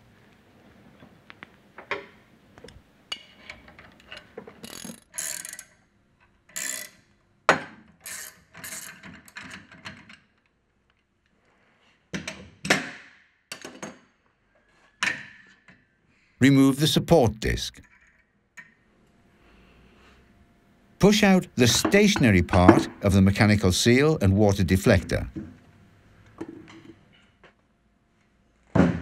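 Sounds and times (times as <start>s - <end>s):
ratchet wrench clicking: 4.6s - 5.7s, 6.5s - 7.0s.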